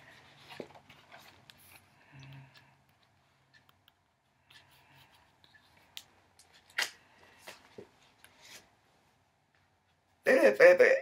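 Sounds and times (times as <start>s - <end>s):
paper rustling: 0.0s - 1.9s.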